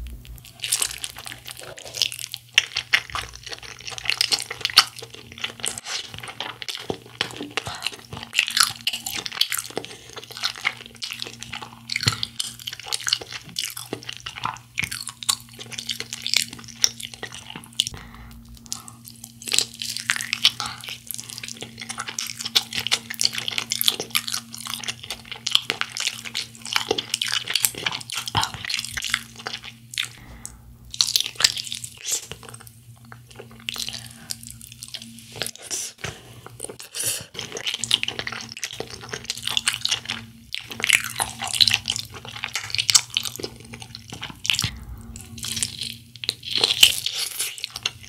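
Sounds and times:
faint low hum: 0.0s - 36.8s, 37.4s - 48.0s
crunching and chewing: 0.3s - 48.0s.

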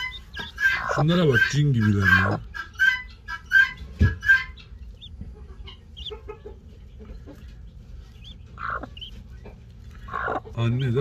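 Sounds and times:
chicks peeping: 0.0s - 11.0s
hen clucking: 0.0s - 11.0s.

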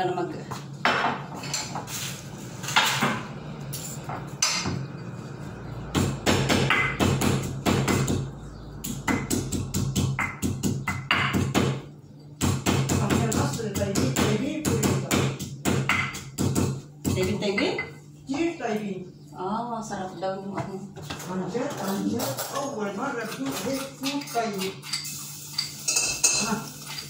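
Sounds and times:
pestle pounding in a mortar: 5.9s - 11.8s, 12.4s - 17.4s.

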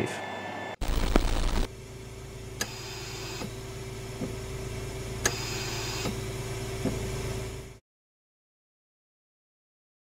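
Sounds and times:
machine hum: 0.5s - 7.8s.

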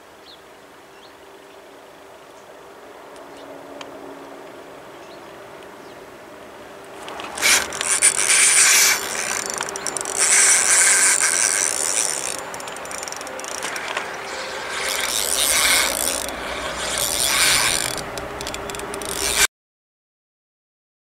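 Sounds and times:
fishing reel cranking: 7.0s - 19.5s.

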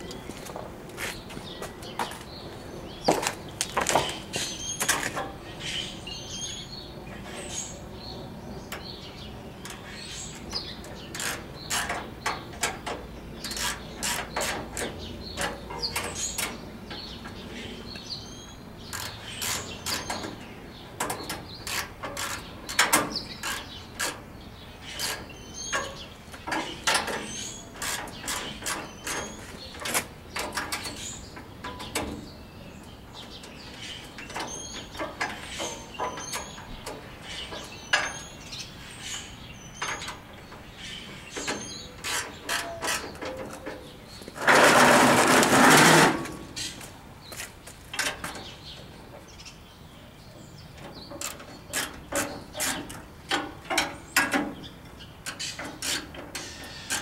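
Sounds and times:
metal clicks and knocks: 9.6s - 17.4s, 21.0s - 24.3s, 25.0s - 32.4s, 41.3s - 45.5s, 50.8s - 57.0s.

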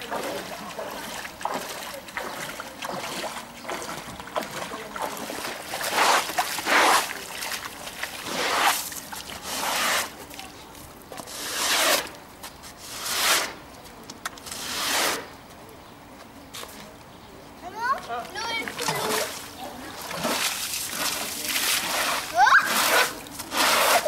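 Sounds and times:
feet wading through water: 0.0s - 11.7s, 18.7s - 24.0s.

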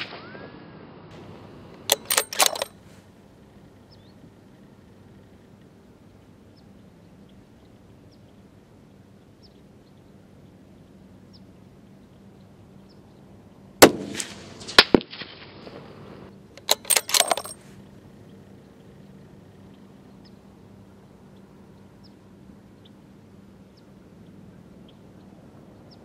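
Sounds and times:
rifle bolt clicking: 1.8s - 2.8s, 16.6s - 17.6s
rifle shot: 13.8s - 15.3s.

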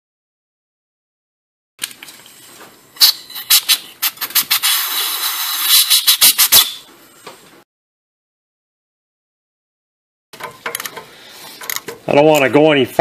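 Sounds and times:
air hissing from blow gun: 3.0s - 6.8s
compressed air blasts: 3.0s - 6.9s.

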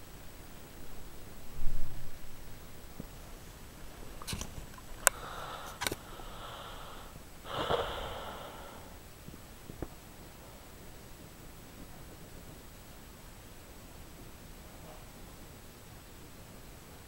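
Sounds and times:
breathing through the nose: 5.0s - 9.0s.

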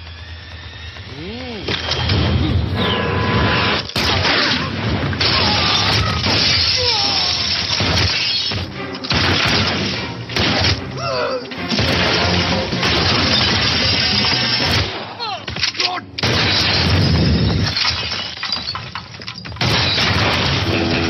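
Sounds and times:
driving film score: 0.0s - 21.0s
crashes and shattering: 3.3s - 10.8s, 11.5s - 21.0s
gunshot bangs: 9.1s - 10.9s, 11.7s - 15.0s, 16.2s - 17.7s, 19.6s - 21.0s.

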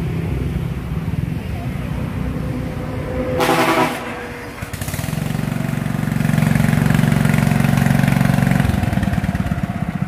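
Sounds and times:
ride-on mower engine running: 4.6s - 10.0s.

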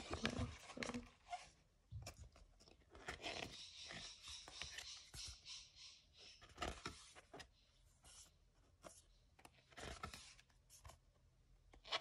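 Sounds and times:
pages being turned: 0.0s - 5.2s.

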